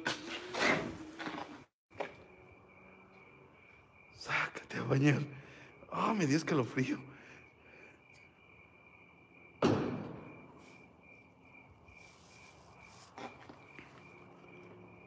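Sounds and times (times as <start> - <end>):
crickets chirping: 0.3 - 15.0
loud thud: 9.6 - 10.5.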